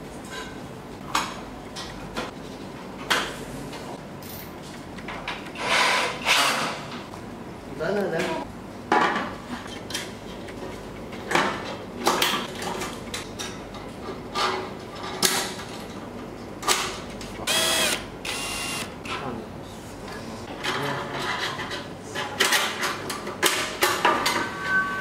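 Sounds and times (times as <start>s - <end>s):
cordless drill whirring: 17.5s - 18.9s.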